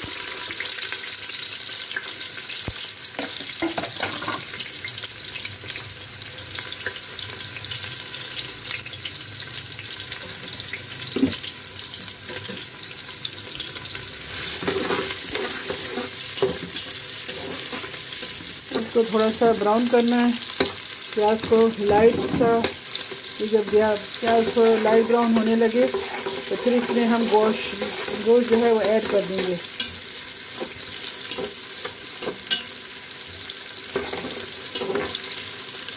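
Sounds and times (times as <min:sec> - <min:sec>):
onion and garlic sizzling in oil: 0:00.0 - 0:35.9.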